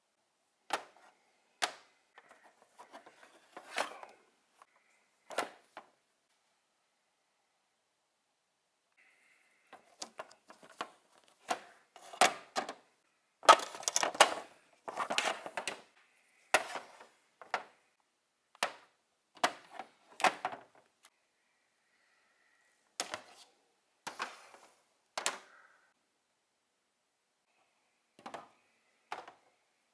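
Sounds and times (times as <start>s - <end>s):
plastic toys scraping: 2.2s - 4.2s, 9.7s - 12.8s, 13.4s - 15.9s, 16.5s - 17.6s
plastic toys clacking: 9.8s - 15.9s, 25.2s - 25.6s.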